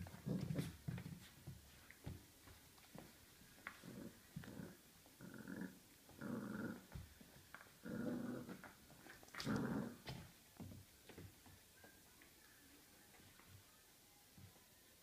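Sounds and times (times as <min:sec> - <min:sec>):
puppy play growling: 0:00.0 - 0:01.2, 0:03.6 - 0:10.3.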